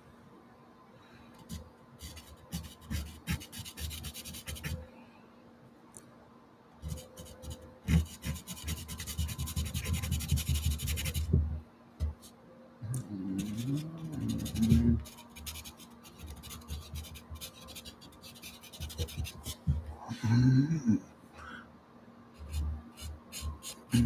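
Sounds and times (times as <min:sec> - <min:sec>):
pencil scratching on paper: 0:01.5 - 0:04.8, 0:06.8 - 0:11.3, 0:13.3 - 0:19.7, 0:22.4 - 0:24.0.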